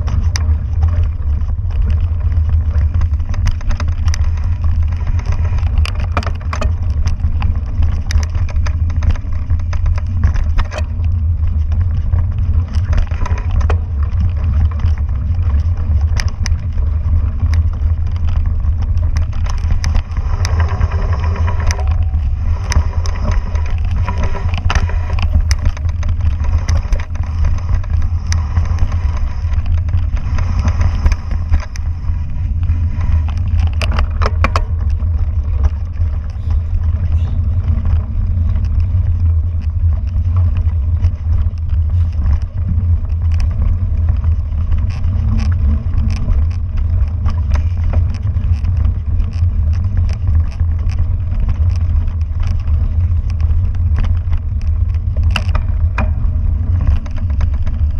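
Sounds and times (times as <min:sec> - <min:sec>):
bike rattling over bumps: 0:00.0 - 0:57.9
wind buffeting microphone: 0:00.0 - 0:57.9.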